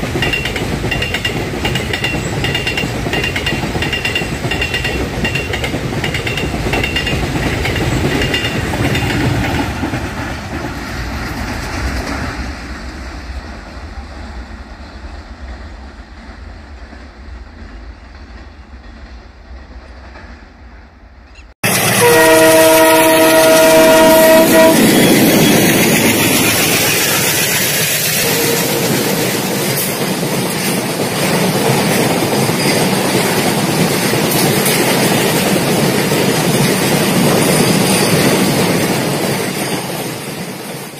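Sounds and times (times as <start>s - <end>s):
freight wagons rolling on rails: 0.0s - 12.5s, 21.6s - 40.9s
train running noise: 0.0s - 40.9s
locomotive horn: 21.6s - 25.3s, 28.2s - 29.5s.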